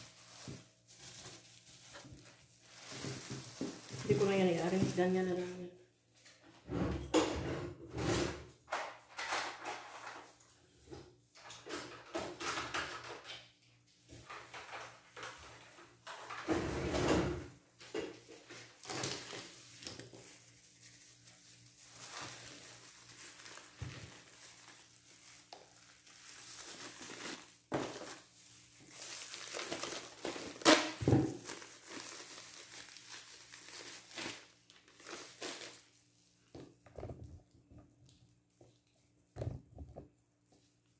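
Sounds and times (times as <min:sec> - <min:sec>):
plastic bags rustling: 0:00.0 - 0:05.5, 0:18.2 - 0:36.8.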